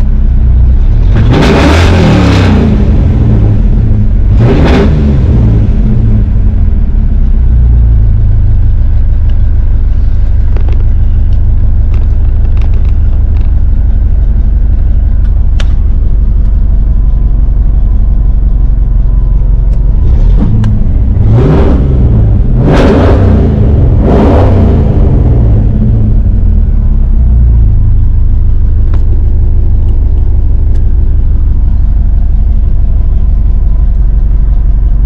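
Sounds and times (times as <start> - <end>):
engine revving: 0.0 - 8.6, 19.6 - 32.0
car engine idling: 0.0 - 35.0.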